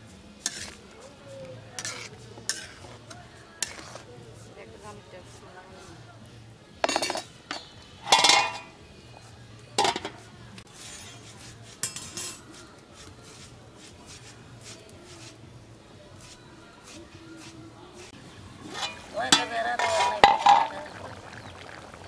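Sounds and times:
metal cookware clinking: 1.8 - 2.8, 6.8 - 8.8, 9.8 - 10.2, 11.8 - 12.5, 18.6 - 21.1.

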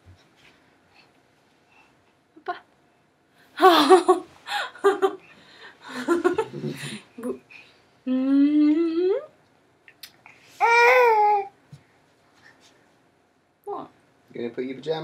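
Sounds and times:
baby babbling: 10.6 - 11.5
baby drawn-out vocal sounds: 10.6 - 11.6.

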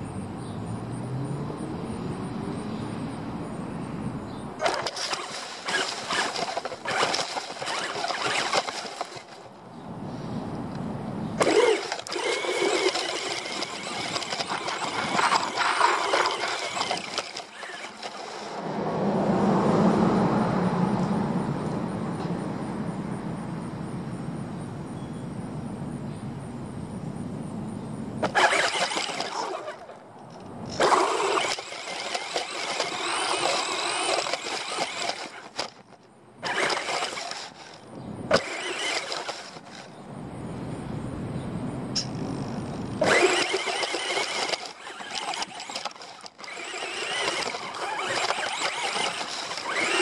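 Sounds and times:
toy car motor whining: 4.6 - 9.4, 11.4 - 18.6, 28.2 - 30.0, 30.7 - 40.0, 42.9 - 50.0
rustling and rattling through grass: 4.6 - 9.5.

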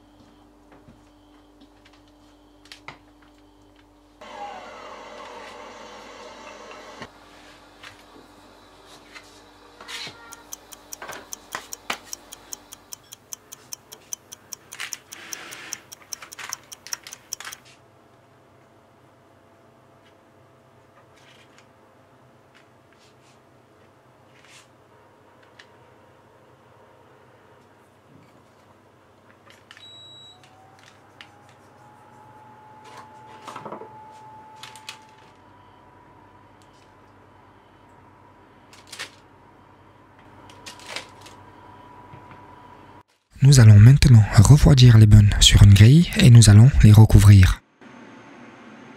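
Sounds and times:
clock ticking rapidly: 10.2 - 17.6
appliance beep: 29.8 - 30.7.

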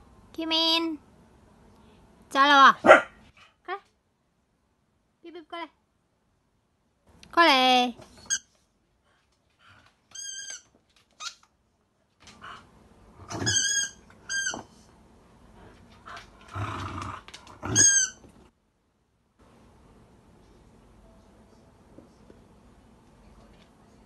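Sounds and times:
toy ball squeaks: 10.1 - 10.6, 13.4 - 14.6.

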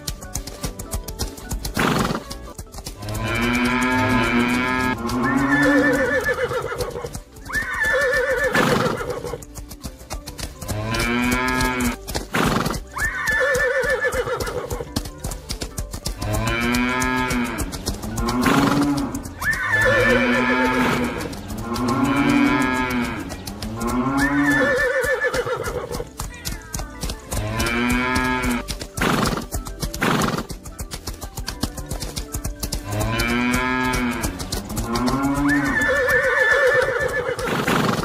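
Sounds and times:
cow mooing: 3.0 - 6.6, 10.7 - 12.0, 16.2 - 24.8, 27.4 - 28.7, 32.8 - 36.0
horse neighing: 3.1 - 9.5, 10.9 - 15.0, 16.4 - 26.7, 33.5 - 38.0.

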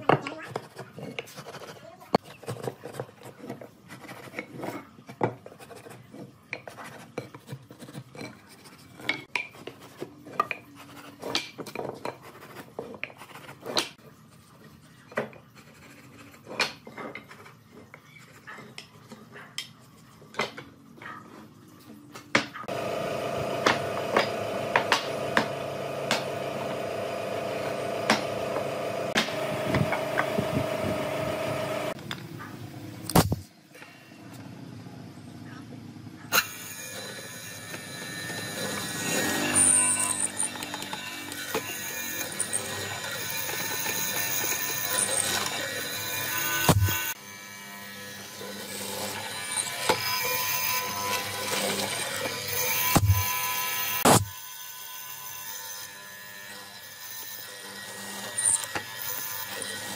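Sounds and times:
knocks and scrapes on wood: 0.0 - 14.0, 14.6 - 19.5
motor hum: 22.7 - 33.4, 34.6 - 54.4.

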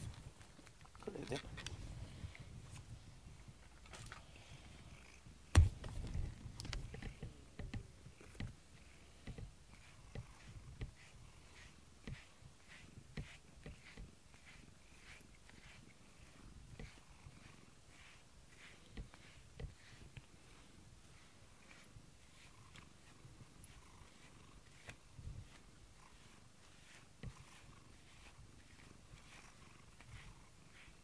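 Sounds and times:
cat purring: 4.2 - 31.0
sharp knock: 5.6 - 5.8
brush swishing: 5.6 - 31.0.

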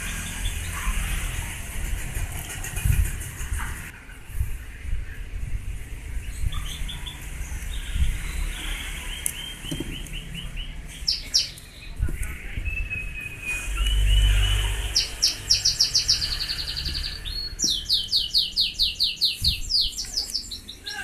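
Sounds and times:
bird chirping: 0.0 - 1.6, 6.2 - 21.0.

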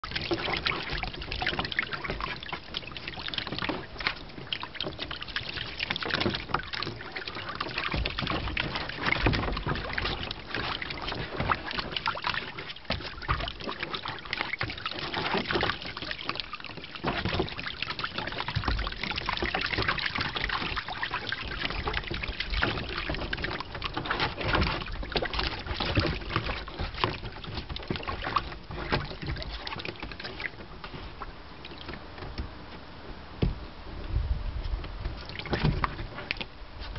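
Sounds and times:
water splashing in plastic pool: 0.0 - 36.9.

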